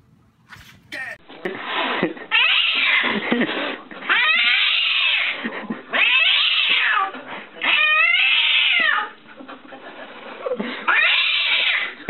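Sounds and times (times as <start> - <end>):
cat yowling: 4.1 - 5.4, 6.0 - 9.1, 10.9 - 12.0.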